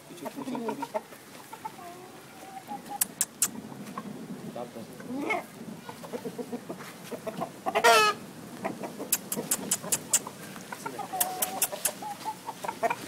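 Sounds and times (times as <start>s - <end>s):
rooster clucking: 0.0s - 4.1s, 5.0s - 13.0s
sharp clicks: 3.0s - 3.6s, 9.1s - 10.3s.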